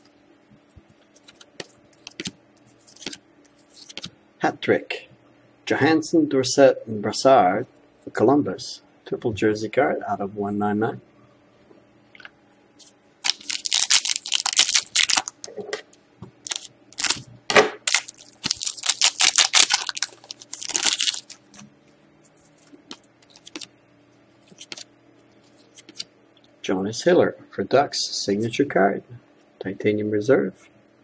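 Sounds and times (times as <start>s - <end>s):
cards clicking: 1.2s - 3.2s
foil wrapper crinkling and tearing: 13.2s - 15.4s, 16.4s - 17.2s, 17.8s - 21.5s, 22.9s - 23.7s.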